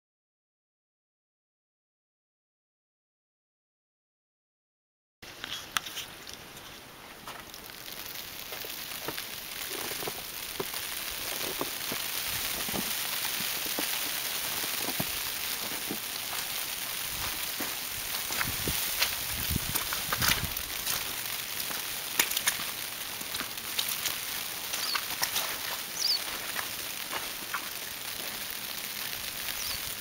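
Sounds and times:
steady snowfall hiss: 5.3s - 30.0s
soft ticks and pops: 7.2s - 16.6s, 17.2s - 29.8s.

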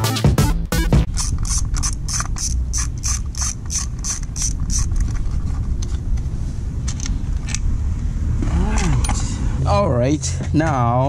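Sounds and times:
socket ratchet clicking: 1.1s - 5.2s.

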